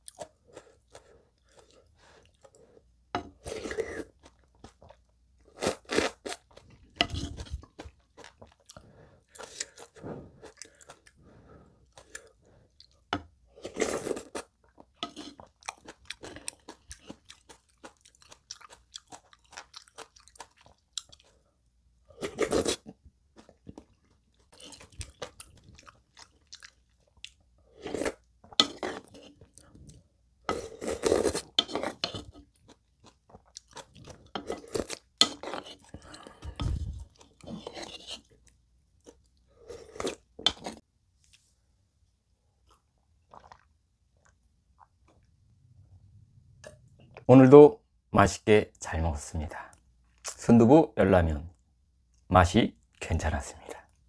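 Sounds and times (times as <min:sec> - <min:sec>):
wet chewing: 0:03.4 - 0:11.2, 0:13.8 - 0:21.4, 0:22.4 - 0:41.4
slurping broth from a spoon: 0:06.9 - 0:07.8, 0:30.4 - 0:32.5, 0:34.0 - 0:38.4.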